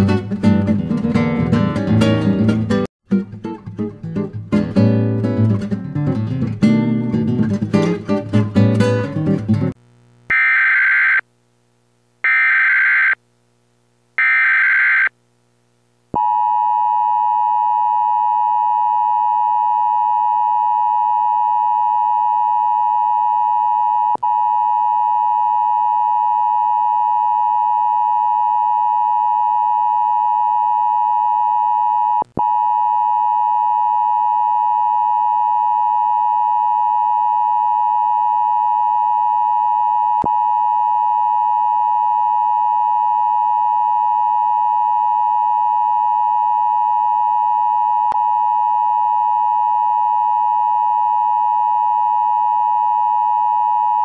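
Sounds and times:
loud electronic alert tone: 10.3s - 11.2s, 12.3s - 13.2s, 14.2s - 15.1s.

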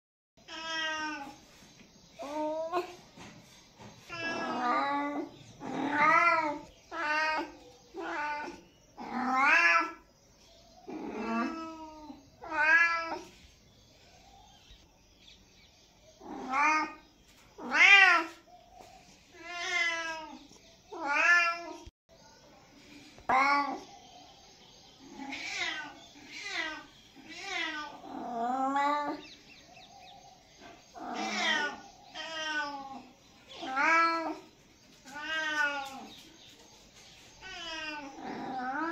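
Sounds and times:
cat meowing: 4.1s - 10.0s, 11.0s - 13.3s, 19.4s - 21.9s, 25.2s - 29.2s, 31.0s - 33.0s, 33.6s - 34.5s, 35.1s - 36.1s.

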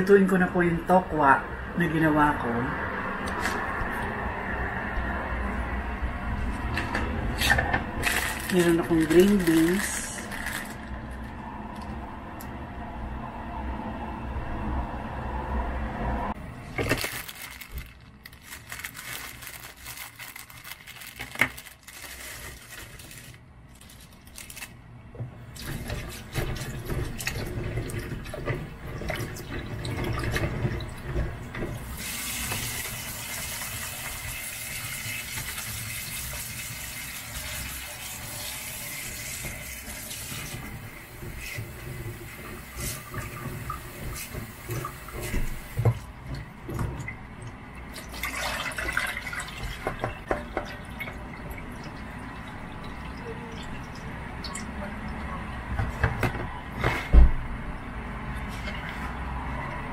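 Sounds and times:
plastic packaging rustling: 7.4s - 11.4s, 16.6s - 24.8s
tap water running: 25.4s - 55.2s.

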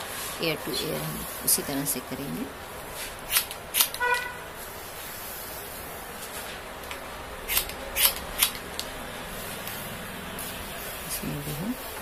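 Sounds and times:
scissors snipping hair: 7.5s - 8.9s.

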